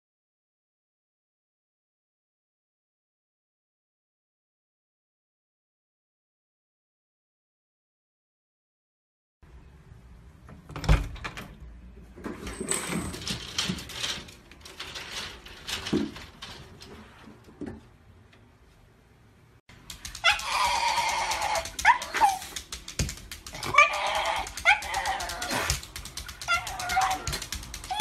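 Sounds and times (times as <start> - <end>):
faint knocks and rustles: 12.0 - 18.9
dog whining and yelping: 20.1 - 22.6, 23.5 - 28.0.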